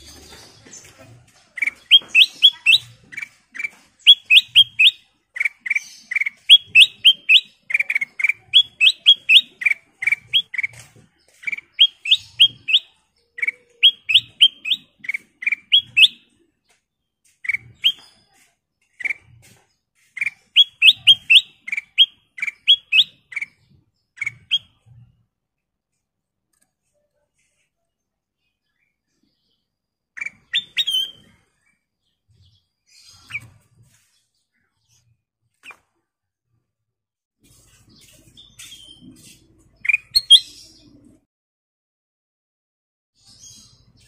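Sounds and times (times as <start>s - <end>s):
bird singing chirps: 0.0s - 25.1s, 28.4s - 35.8s, 37.7s - 41.2s.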